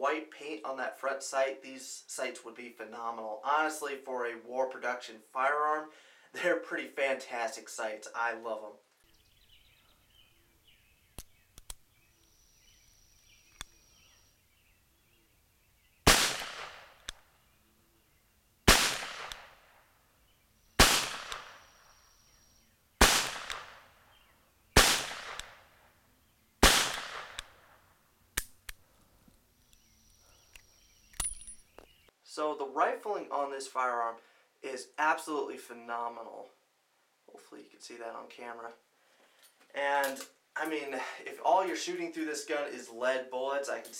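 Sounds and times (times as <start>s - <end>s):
revolver metallic clicks: 11.2s - 12.4s, 29.7s - 31.6s
revolver shots with echo: 16.1s - 17.2s, 18.7s - 19.6s, 20.8s - 21.7s, 23.0s - 23.9s, 24.8s - 25.6s, 26.6s - 27.6s.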